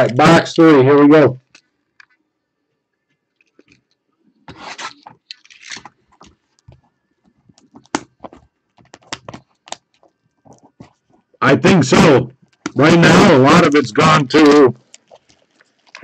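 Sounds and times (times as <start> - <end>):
shrink wrap tearing: 4.6 - 5.9
plastic crinkles and clicks: 4.9 - 6.8, 7.5 - 10.7, 14.8 - 16.0.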